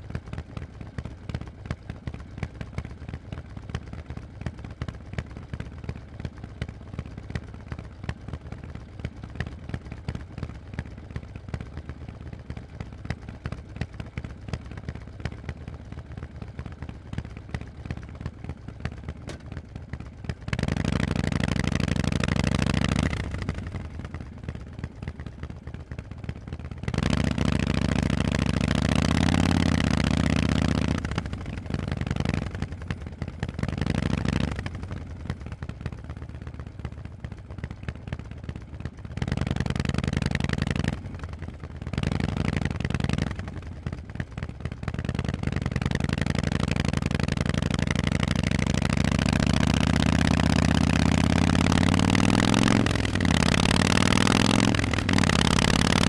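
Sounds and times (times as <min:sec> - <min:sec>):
motorcycle engine revving: 0:26.8 - 0:32.8, 0:33.5 - 0:35.0, 0:41.9 - 0:43.6, 0:45.0 - 0:56.0.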